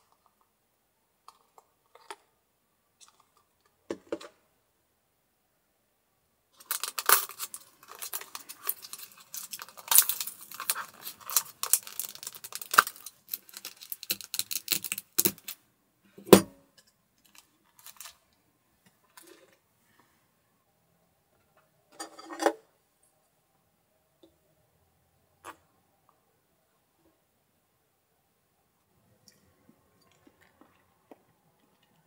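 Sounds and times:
plastic packaging crinkling: 0:06.6 - 0:15.6, 0:17.2 - 0:18.2.

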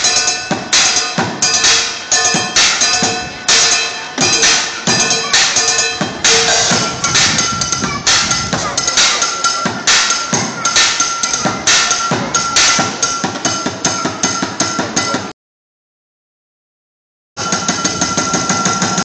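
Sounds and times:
metallic cymbal ring: 0:00.0 - 0:07.8
improvised bucket drumming: 0:00.0 - 0:15.3.

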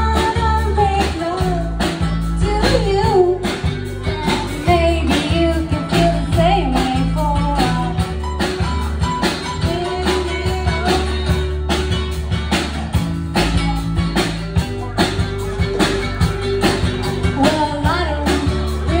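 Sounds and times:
woman singing through a pa: 0:00.0 - 0:08.1, 0:09.6 - 0:11.3, 0:17.3 - 0:19.0
electric bass notes: 0:00.0 - 0:19.0
strummed acoustic guitar: 0:00.0 - 0:19.0.

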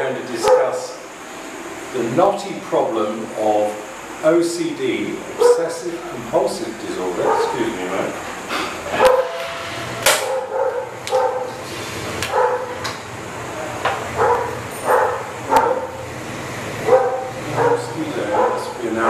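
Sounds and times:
dog barking: 0:00.4 - 0:00.9, 0:05.4 - 0:05.8, 0:07.2 - 0:07.6, 0:08.9 - 0:09.5, 0:10.2 - 0:11.6, 0:12.3 - 0:12.8, 0:14.2 - 0:16.0, 0:16.8 - 0:18.8.

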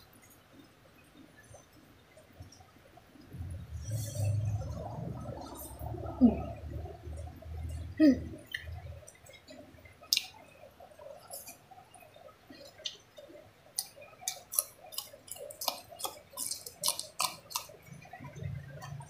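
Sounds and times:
chewing with wet mouth clicks: 0:08.5 - 0:19.0
crisp crunches of green bean: 0:13.8 - 0:17.8.

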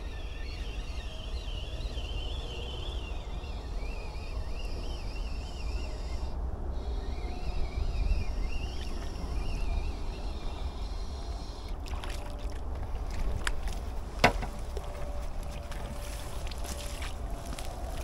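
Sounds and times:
wind rumbling on microphone: 0:00.0 - 0:18.0.

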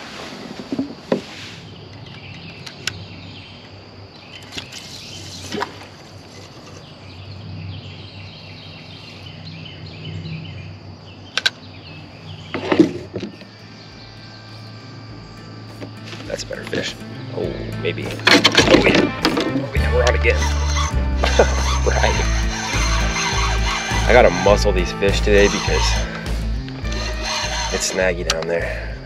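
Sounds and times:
gear clicking and knocking: 0:20.3 - 0:26.1, 0:26.7 - 0:28.4.

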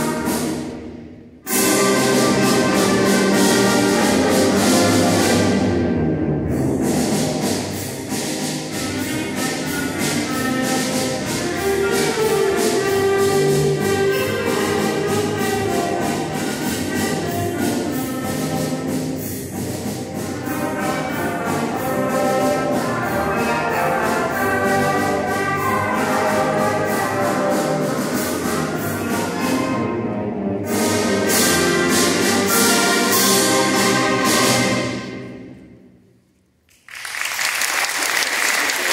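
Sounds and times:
concert band playing: 0:00.0 - 0:35.8
audience applause: 0:36.7 - 0:38.9.

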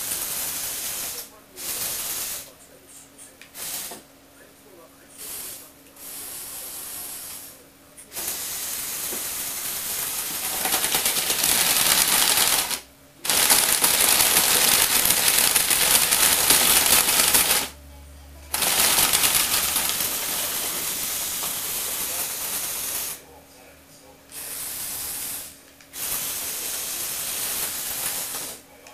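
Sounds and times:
toy rover motors whirring: 0:09.9 - 0:17.7, 0:18.5 - 0:21.5.

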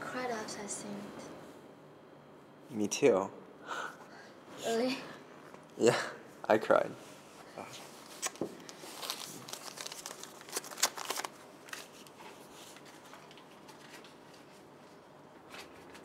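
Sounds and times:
paper ticket crinkling: 0:08.0 - 0:14.7.

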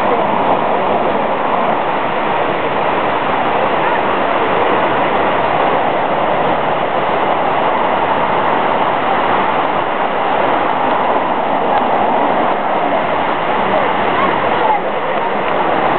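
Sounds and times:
waterfall rushing: 0:00.0 - 0:15.9.

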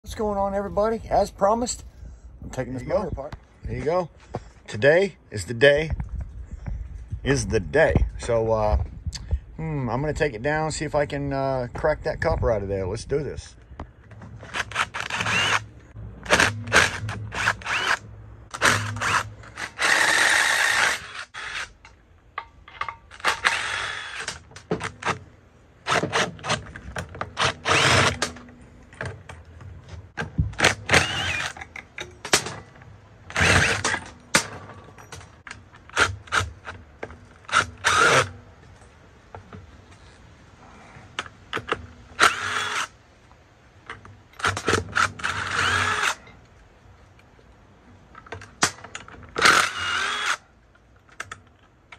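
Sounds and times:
cordless power driver whirring: 0:14.6 - 0:15.7, 0:16.3 - 0:18.0, 0:27.4 - 0:28.3, 0:30.6 - 0:31.5, 0:37.5 - 0:38.3, 0:42.2 - 0:42.9, 0:44.5 - 0:46.2, 0:49.4 - 0:50.4.

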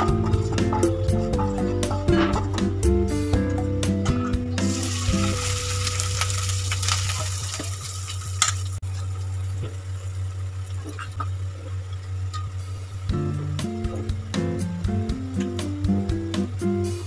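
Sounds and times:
rice sizzling in oil: 0:04.7 - 0:10.6
steady low hum: 0:08.2 - 0:17.0.

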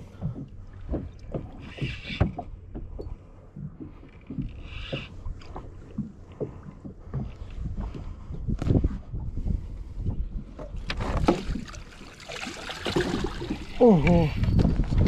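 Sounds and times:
water knocking against boat hull: 0:00.0 - 0:08.1, 0:10.5 - 0:14.7
water splashing: 0:10.9 - 0:14.4.

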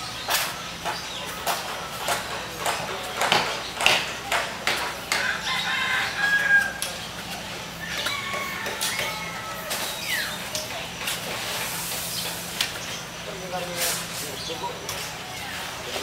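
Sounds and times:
sharp irregular knocks: 0:00.8 - 0:05.4
rooster crowing: 0:05.1 - 0:06.9, 0:07.7 - 0:10.3.

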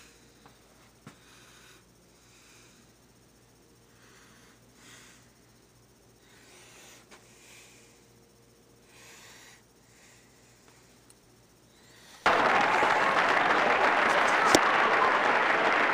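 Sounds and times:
soft breaths: 0:00.0 - 0:12.3.

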